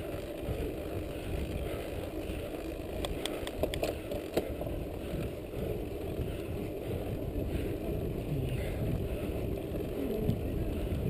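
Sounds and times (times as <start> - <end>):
bike clicks and rattles: 0.0 - 11.0
wind on microphone: 3.0 - 11.0.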